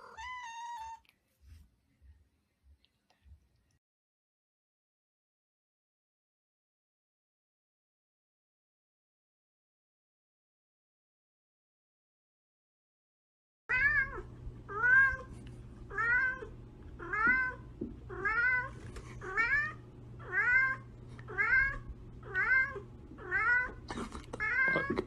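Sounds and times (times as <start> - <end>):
cat meowing: 0.0 - 1.1, 13.7 - 15.3, 15.9 - 23.8, 24.4 - 25.0.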